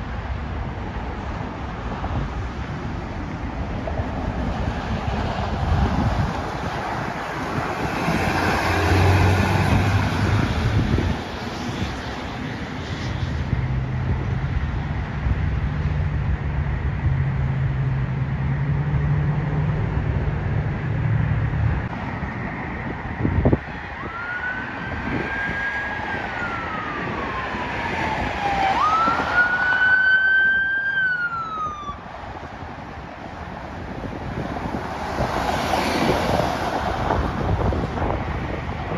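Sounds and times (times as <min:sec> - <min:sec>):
electronic siren wailing: 0:24.0 - 0:32.0.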